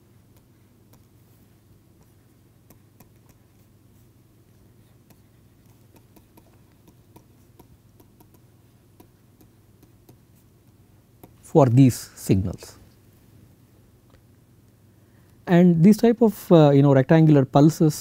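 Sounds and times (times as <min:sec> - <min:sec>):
stylus tapping on pen tablet: 0:05.0 - 0:11.4.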